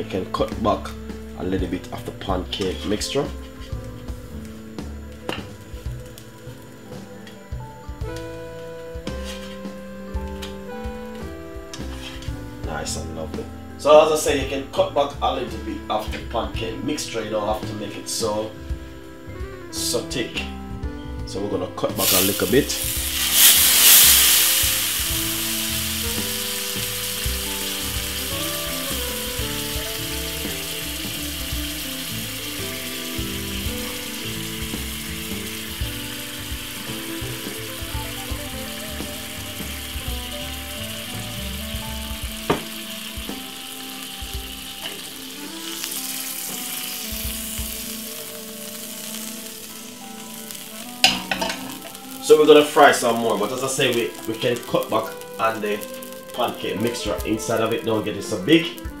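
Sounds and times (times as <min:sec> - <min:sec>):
batter sizzling in frying pan: 0:00.0 - 0:15.1, 0:21.9 - 0:59.0
faint background music: 0:00.0 - 0:59.0.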